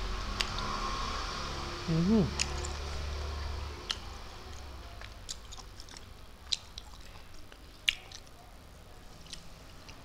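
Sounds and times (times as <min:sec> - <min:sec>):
person chewing food: 0:02.3 - 0:10.0
wet mouth smacks: 0:07.8 - 0:08.3.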